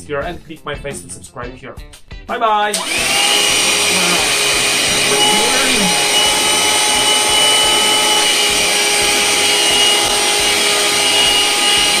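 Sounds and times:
handheld vacuum cleaner running: 2.7s - 12.0s.

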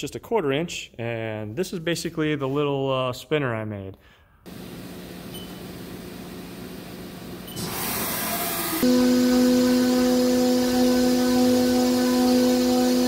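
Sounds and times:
milling cutter whine: 7.5s - 13.0s.

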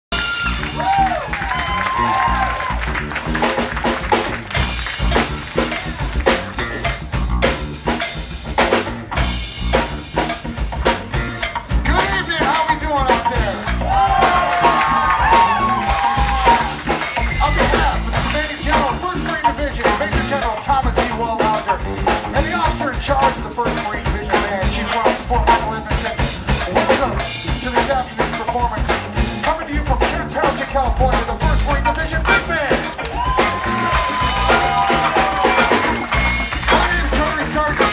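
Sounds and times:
live big band playing: 0.1s - 37.9s
man speaking on microphone: 11.8s - 13.9s, 17.4s - 19.8s, 36.6s - 37.9s.

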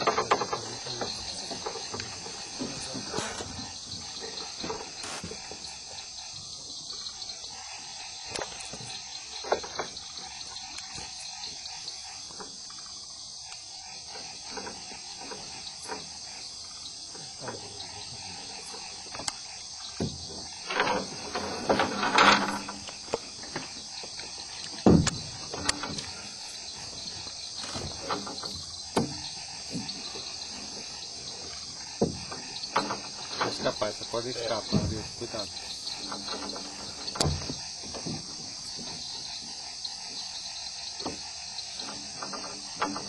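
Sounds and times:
knocks and bumps: 0.0s - 6.0s, 14.2s - 40.3s, 40.9s - 43.0s
crickets and insects chirring: 0.0s - 43.0s.

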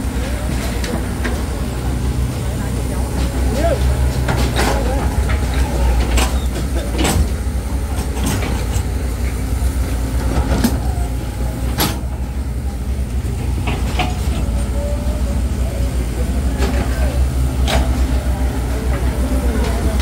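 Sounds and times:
low engine rumble: 0.0s - 20.0s.

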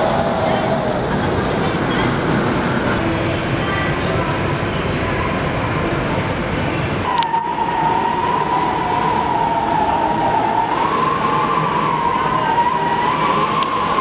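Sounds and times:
storm wind whistling and rushing: 0.0s - 3.1s, 7.0s - 14.0s.

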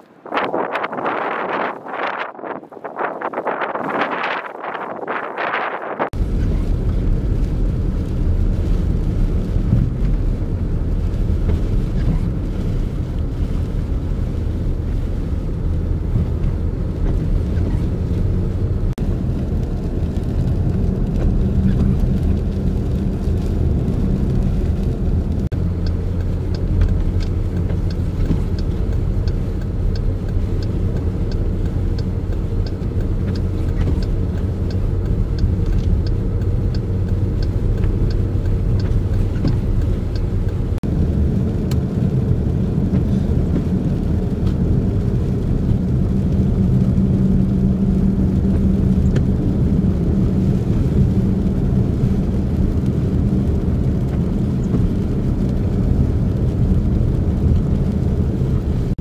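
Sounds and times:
engine and road drone: 0.0s - 59.0s
light regular ticking: 18.5s - 58.1s.

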